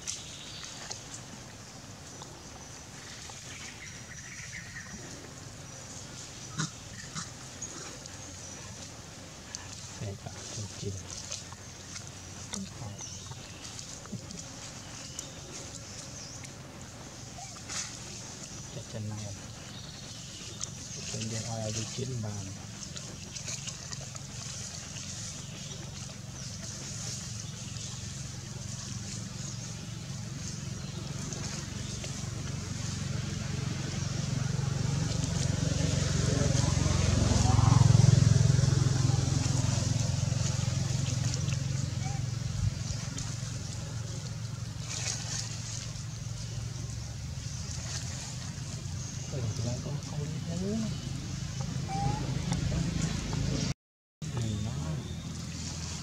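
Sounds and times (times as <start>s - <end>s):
low hum: 2.1s - 56.0s
faint high-pitched calls: 51.8s - 52.6s.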